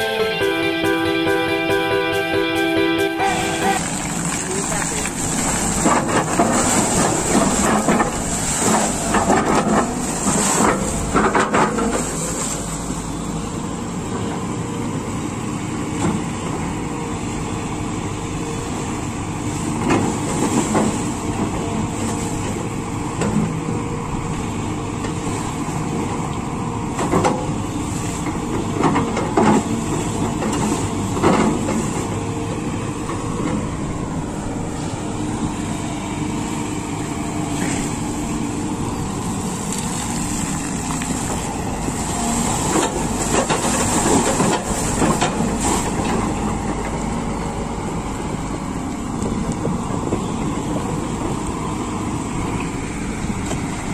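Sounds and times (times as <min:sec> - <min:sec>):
excavator diesel engine running: 0:00.0 - 0:53.9
water splashing: 0:03.6 - 0:13.2, 0:37.4 - 0:46.5.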